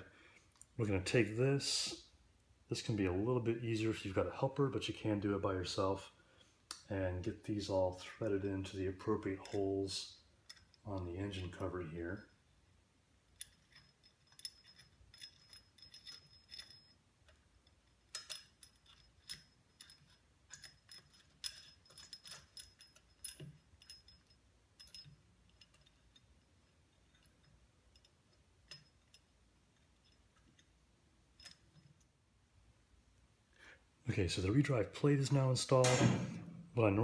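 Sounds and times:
metal bolts and washers clinking: 7.5s - 12.5s, 13.2s - 32.2s, 35.7s - 37.0s.

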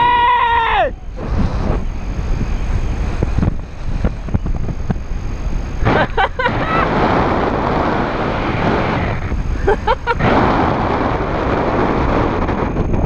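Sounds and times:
wind buffeting microphone: 0.8s - 13.0s.

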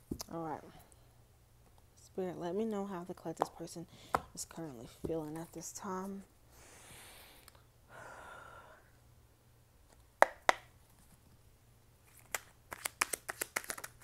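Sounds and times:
cards rustling: 12.0s - 14.0s
cards snapping: 12.1s - 14.0s.

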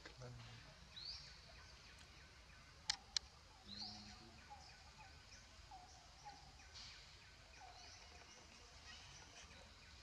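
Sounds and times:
sharp click: 2.8s - 3.3s.

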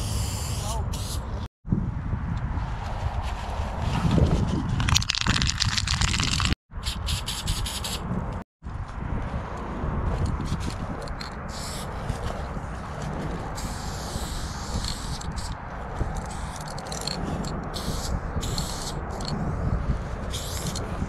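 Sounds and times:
spray paint can hissing: 4.9s - 8.0s, 11.2s - 11.9s, 13.6s - 15.6s, 16.2s - 19.4s, 20.3s - 20.8s.

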